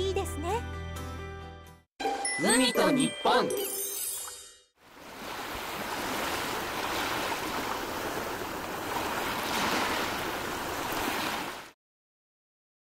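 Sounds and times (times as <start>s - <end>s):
ocean waves washing: 4.8s - 11.8s.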